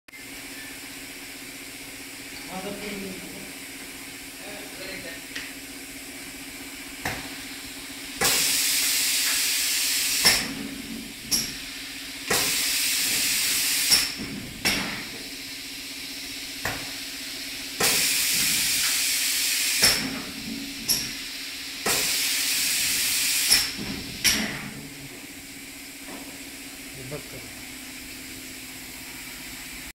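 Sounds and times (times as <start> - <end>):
steady machine hum: 0.1 - 29.9
spray guns hissing: 8.2 - 10.5, 11.4 - 14.2, 17.0 - 20.1, 20.9 - 23.8.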